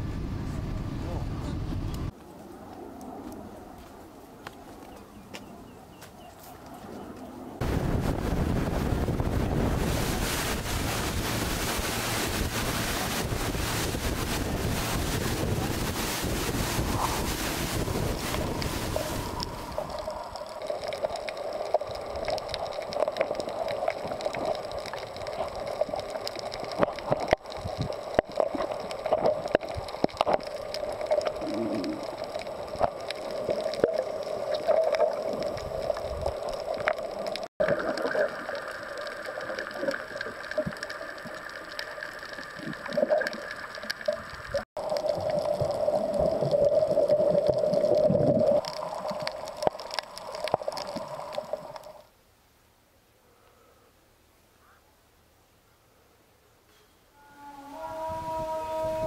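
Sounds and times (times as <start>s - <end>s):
steady hum: 7.6s - 20.6s
water gurgling underwater: 7.7s - 52.0s.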